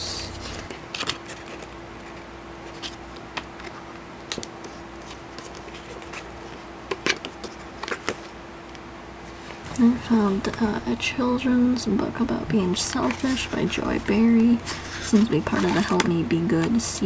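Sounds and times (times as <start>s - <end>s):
faint steady hum: 0.0s - 17.0s
book pages rustling and flicking: 0.4s - 9.7s, 12.9s - 16.7s.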